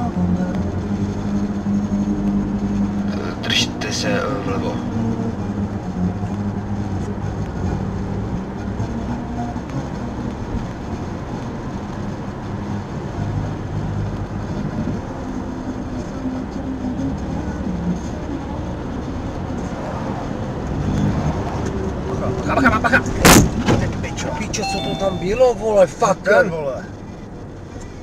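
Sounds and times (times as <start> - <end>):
low engine hum: 0.0 - 28.0
tyre and road noise: 0.0 - 28.0.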